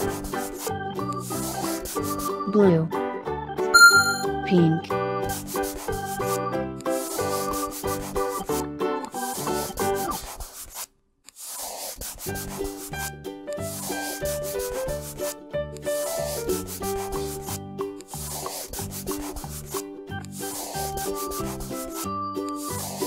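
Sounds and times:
marker scribbling on paper: 0.0 - 2.3, 5.3 - 6.3, 6.9 - 8.5, 9.2 - 13.1, 13.7 - 23.0
cheerful background music: 0.0 - 10.2, 12.3 - 23.0.

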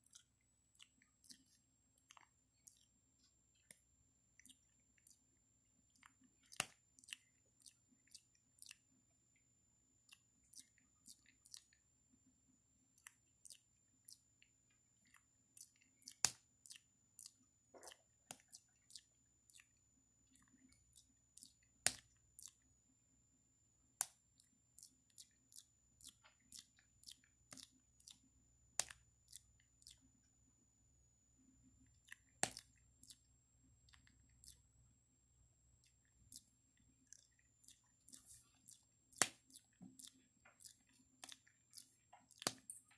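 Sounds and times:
monkey teeth and lip clicks: 15.1 - 19.7, 24.0 - 30.1, 32.0 - 33.2, 35.8 - 42.9.

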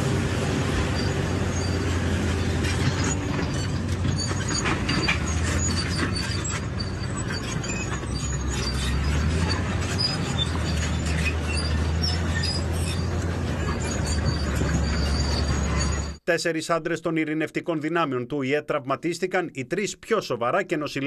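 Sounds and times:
diesel engine droning: 0.0 - 16.2
steel tracks clanking and squealing: 0.2 - 16.2.

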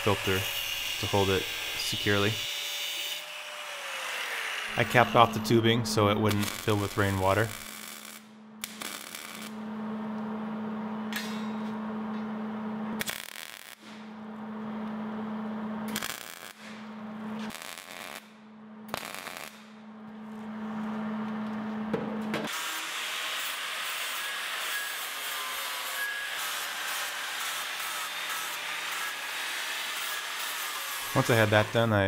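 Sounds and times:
arc welding buzz with crackle: 0.0 - 9.7, 13.0 - 14.2, 15.9 - 19.8, 22.5 - 32.0
angle grinder grinding: 3.2 - 7.8.

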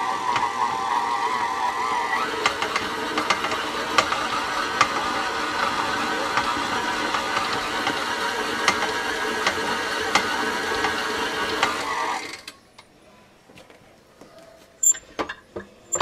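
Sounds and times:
stand mixer whirring: 0.0 - 12.3.

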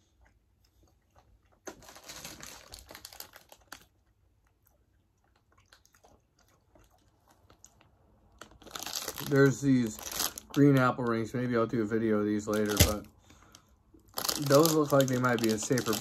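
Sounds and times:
plastic bag crinkling: 1.6 - 4.0, 7.4 - 11.0, 12.4 - 13.1, 14.0 - 16.0.

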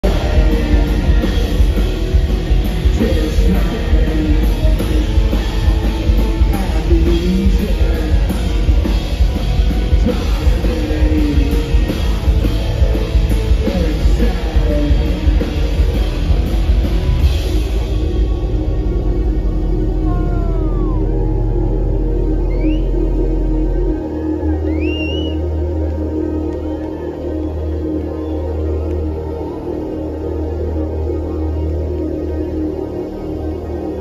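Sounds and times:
man singing: 0.0 - 1.8, 2.8 - 9.1, 9.8 - 12.4, 13.5 - 15.8
industrial rock band playing: 0.0 - 34.0.

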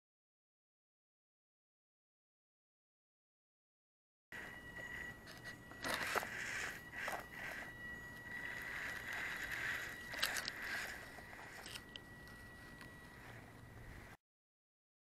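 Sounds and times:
toy car electric motor whining: 4.4 - 14.2.

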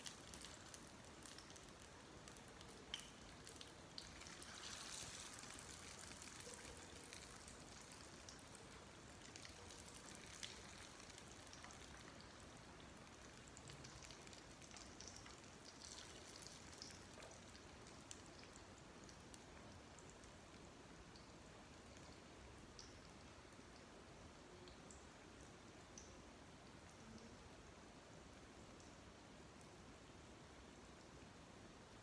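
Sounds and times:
spring rolls sizzling in oil: 0.0 - 23.4.

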